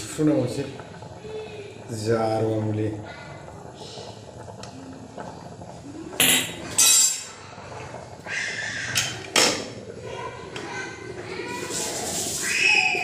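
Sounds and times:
ladle scraping metal pot: 6.2 - 7.4.

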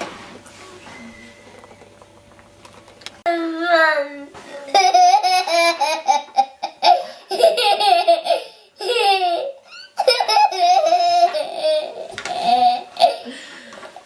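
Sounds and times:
toddler laughing: 4.7 - 13.3.

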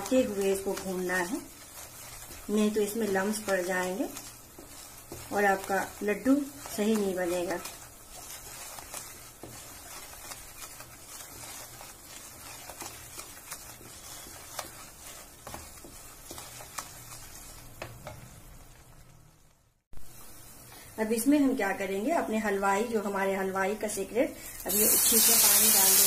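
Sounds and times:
wooden spatula scraping pan: 0.0 - 18.6
flour sizzling in ghee: 0.0 - 26.0.

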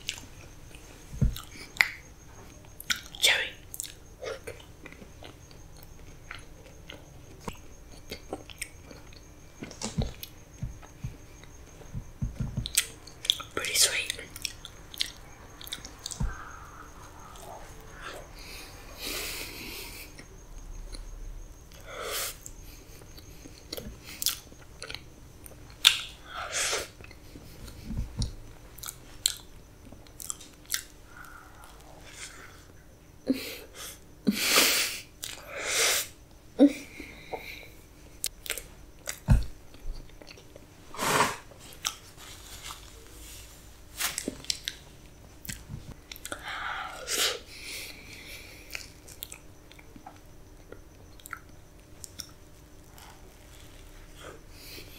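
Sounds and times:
person chewing with mouth smacks: 1.3 - 2.0, 41.7 - 42.0, 48.7 - 54.4.

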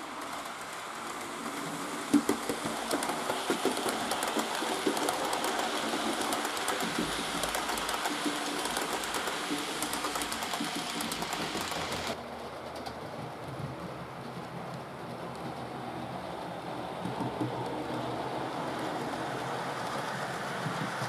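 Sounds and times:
model train wheels rattling: 0.0 - 13.1
clicks over rail joints: 0.1 - 15.6.

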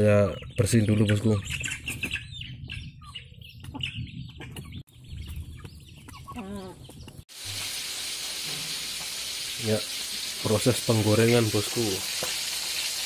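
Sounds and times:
chickens clucking: 0.0 - 7.2
fish frying in hot oil: 7.3 - 13.0.

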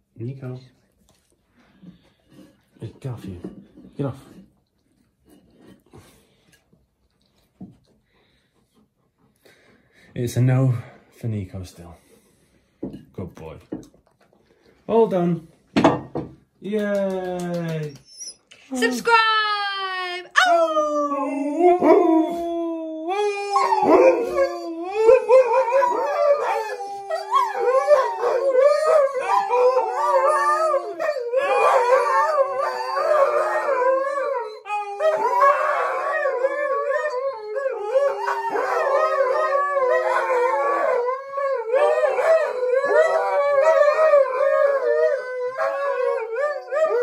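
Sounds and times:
dogs howling: 20.4 - 47.0.

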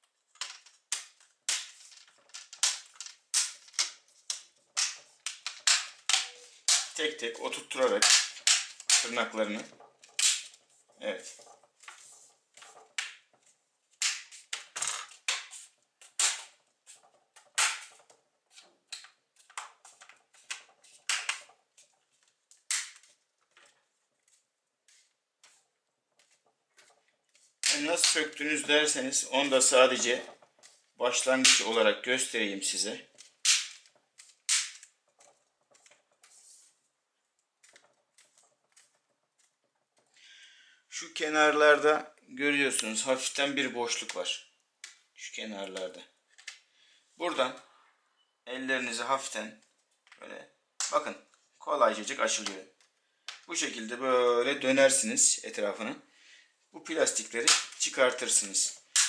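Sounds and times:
plastic frame clicking and creaking: 0.0 - 40.2, 42.7 - 46.7
plastic clips snapping into place: 33.2 - 34.9.

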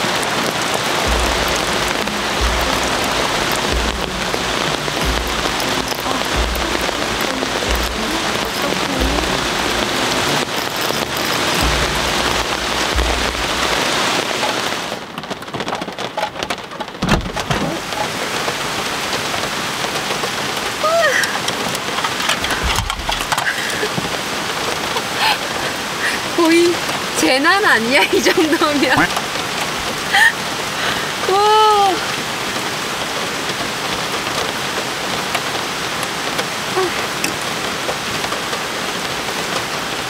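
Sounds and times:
heavy rain hissing: 0.0 - 40.0
low thuds: 0.8 - 15.0, 22.0 - 24.4.

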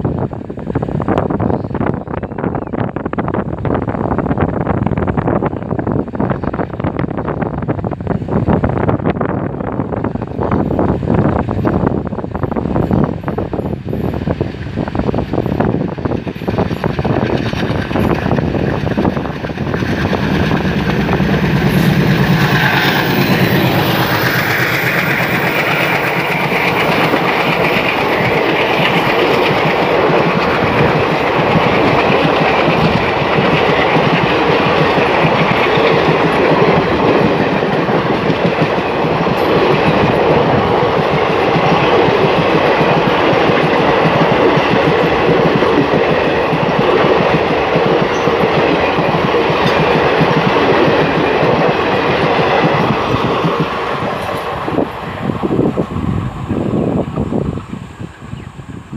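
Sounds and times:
diesel locomotive engine: 0.0 - 58.9
wind buffeting microphone: 0.0 - 58.9
wheels clacking over rail joints: 15.4 - 55.6.

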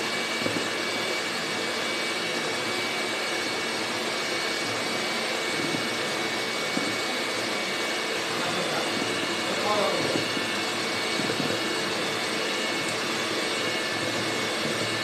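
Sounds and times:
electric hand mixer whisking batter: 0.0 - 15.0.

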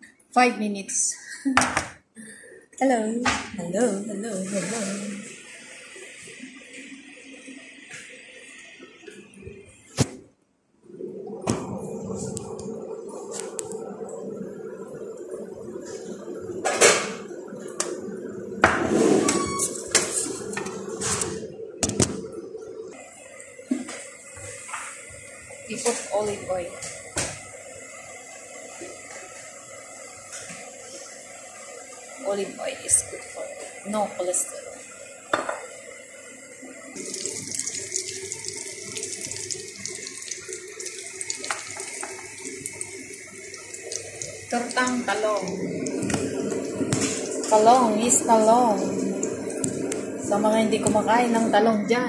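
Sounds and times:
oil sizzling in a frying pan: 33.3 - 51.1
low hum: 36.7 - 52.0.

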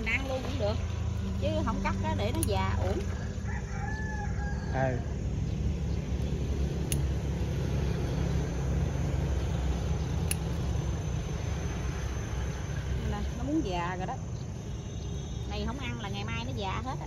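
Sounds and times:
rooster crowing: 3.0 - 5.2.

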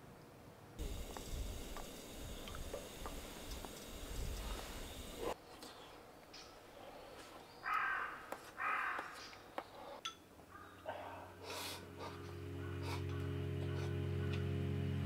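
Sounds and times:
crow cawing: 7.6 - 9.4, 10.5 - 11.0.

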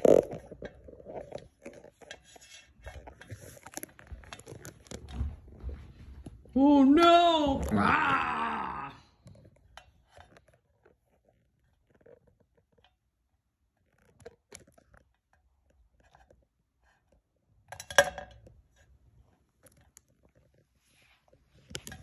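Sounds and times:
plastic toys clattering: 0.0 - 5.7.

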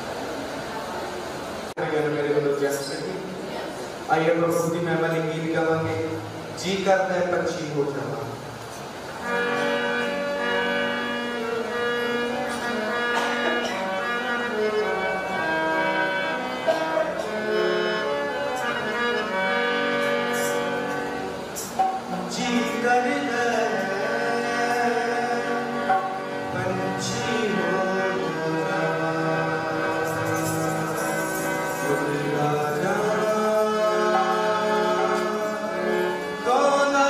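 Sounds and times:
harmonium playing hymn: 1.7 - 37.0
man singing: 22.2 - 37.0.

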